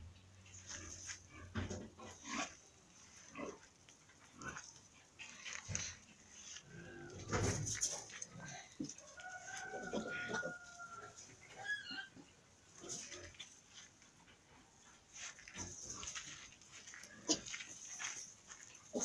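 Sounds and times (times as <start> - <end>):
piglet grunting and squealing: 11.5 - 13.1.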